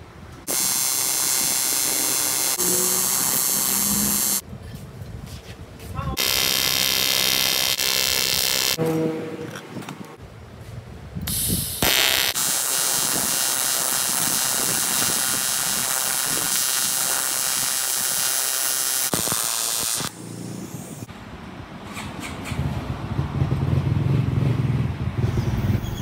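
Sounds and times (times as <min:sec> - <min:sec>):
welding arc buzzing: 0:00.4 - 0:04.4, 0:06.2 - 0:08.8, 0:11.3 - 0:21.1.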